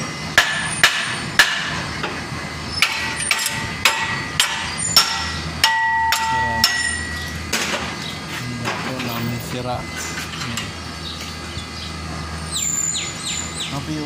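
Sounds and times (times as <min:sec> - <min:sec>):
hammer striking metal: 0:00.4 - 0:02.2, 0:02.8 - 0:07.9
metal ringing tone: 0:02.6 - 0:07.5.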